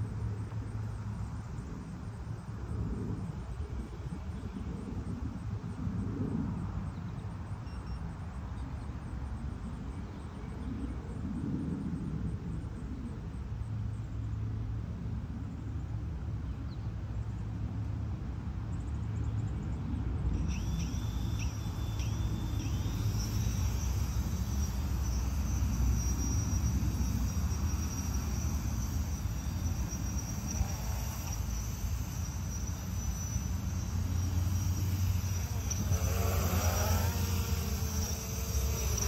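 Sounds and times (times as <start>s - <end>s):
insects trilling: 20.3s - 39.0s.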